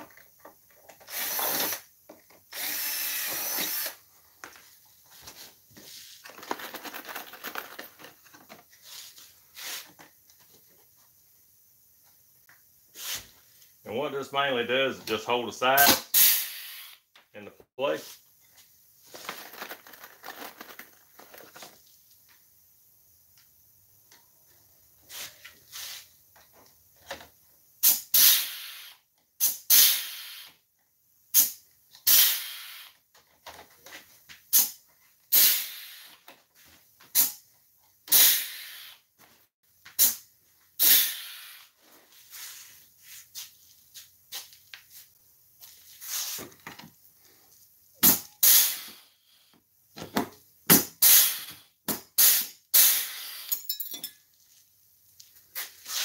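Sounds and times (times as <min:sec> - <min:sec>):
pneumatic rivet gun air hiss: 0:12.9 - 0:13.4, 0:15.8 - 0:17.0, 0:27.8 - 0:30.6, 0:31.3 - 0:33.0, 0:34.5 - 0:36.3, 0:37.2 - 0:37.4, 0:38.1 - 0:39.1, 0:40.0 - 0:40.2, 0:40.8 - 0:41.8, 0:48.0 - 0:49.2, 0:50.8 - 0:53.7.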